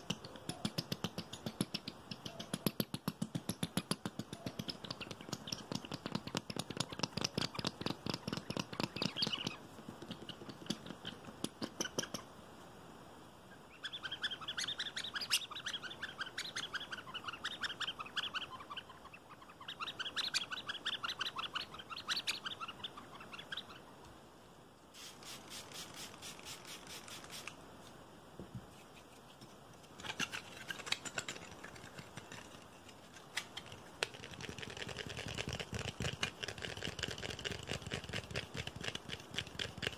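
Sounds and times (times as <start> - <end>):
fingernails tapping on rubber toy: 0.0 - 12.2
rubber squeaks: 4.3 - 12.2, 30.0 - 39.9.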